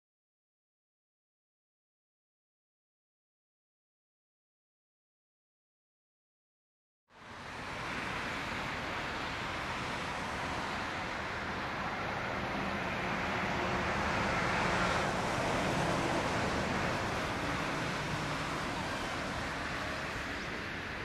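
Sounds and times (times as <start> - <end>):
jet engines rushing rumble: 7.3 - 21.0.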